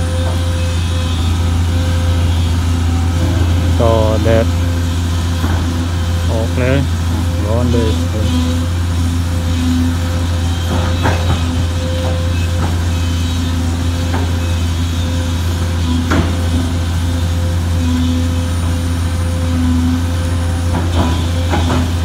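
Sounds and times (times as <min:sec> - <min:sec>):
higher hum: 0:00.0 - 0:15.8
excavator diesel engine running: 0:00.0 - 0:22.0.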